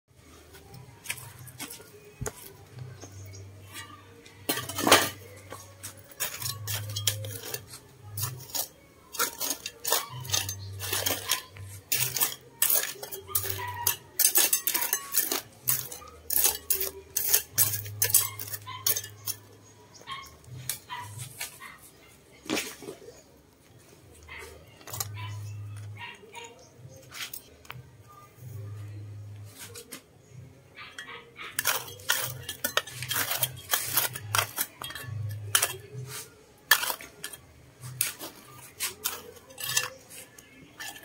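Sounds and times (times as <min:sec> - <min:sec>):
stones and trowel clinking in gravel: 0:04.4 - 0:21.7, 0:24.2 - 0:27.8, 0:30.9 - 0:41.0.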